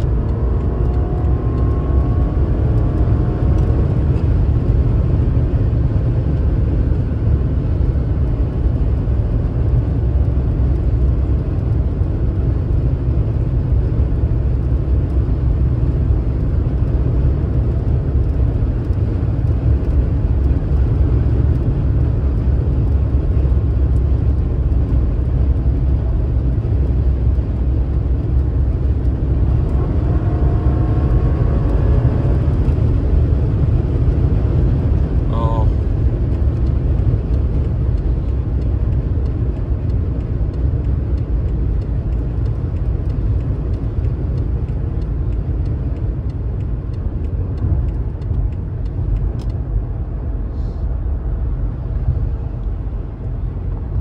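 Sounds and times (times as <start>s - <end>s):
car engine rumble: 0.0s - 54.0s
road noise: 0.0s - 54.0s.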